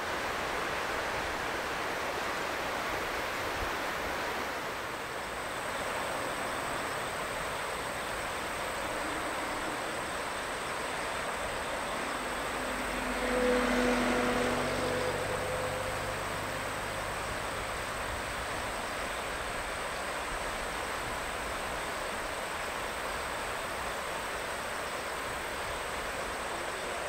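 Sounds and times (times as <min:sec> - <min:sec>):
river water rushing: 0:00.0 - 0:27.0
wind: 0:00.0 - 0:27.0
high insect trill: 0:03.8 - 0:27.0
distant airplane hum: 0:09.0 - 0:18.7.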